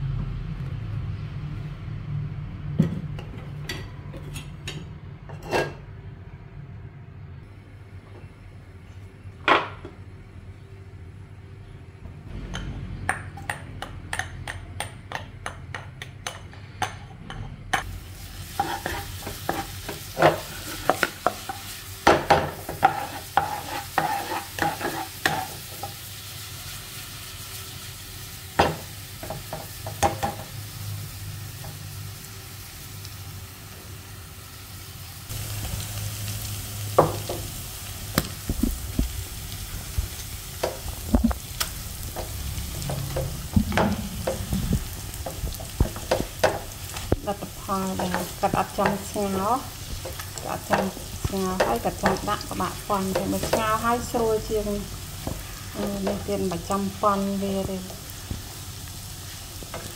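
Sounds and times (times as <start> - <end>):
garlic sizzling in hot oil: 17.8 - 59.9.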